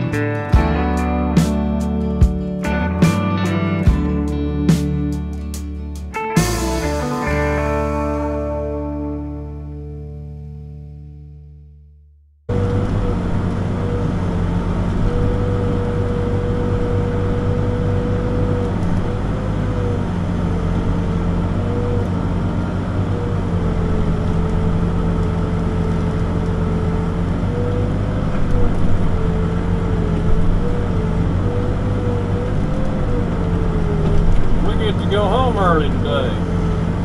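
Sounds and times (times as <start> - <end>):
diesel engine under load: 12.5 - 37.0.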